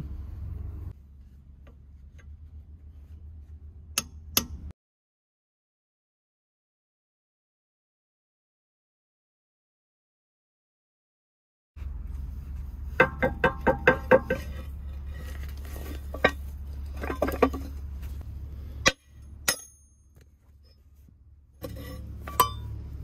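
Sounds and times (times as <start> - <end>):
hammer striking steel pin: 18.8 - 20.2, 22.3 - 22.7.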